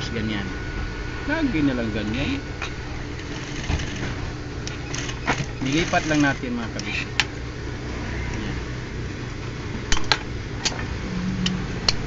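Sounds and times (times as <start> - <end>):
sewing machine motor humming: 2.1 - 6.6.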